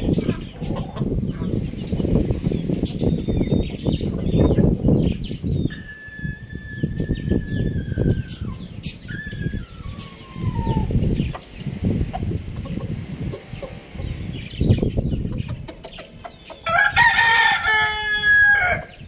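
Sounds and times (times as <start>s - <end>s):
low rumbling: 0.0s - 15.6s
birds chirping: 0.0s - 19.0s
long thin bird call: 5.6s - 11.7s.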